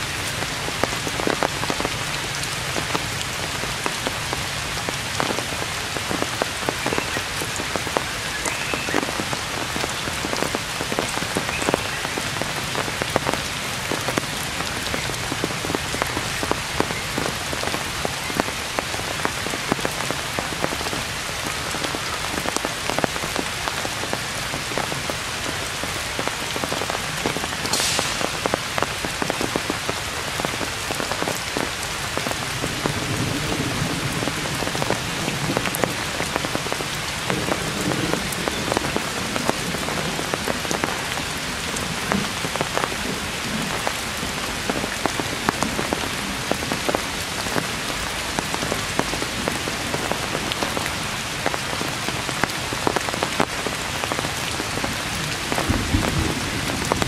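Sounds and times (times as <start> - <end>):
heavy rain on foliage: 0.0 - 57.0
drops hitting leaves: 27.6 - 29.9.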